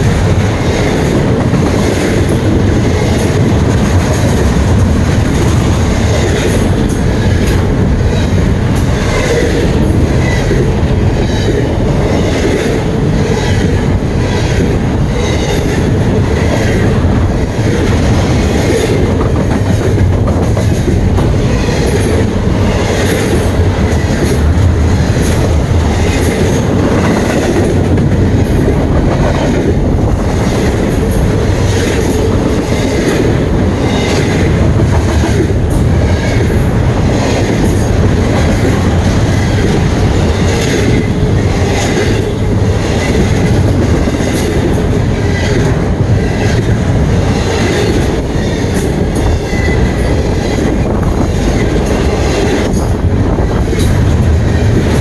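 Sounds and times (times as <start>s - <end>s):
freight train rolling past: 0.0s - 55.0s.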